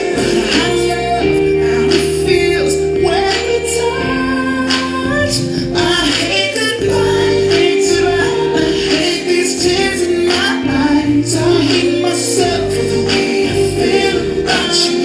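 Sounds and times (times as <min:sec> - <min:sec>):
held chords: 0:00.0 - 0:15.0
woman singing: 0:00.0 - 0:15.0.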